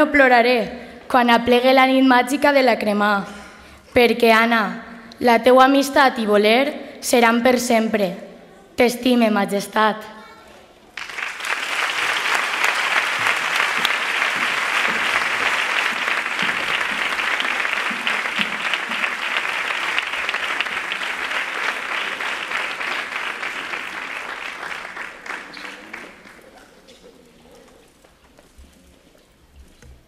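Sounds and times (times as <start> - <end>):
audience applauding: 11.0 - 27.2.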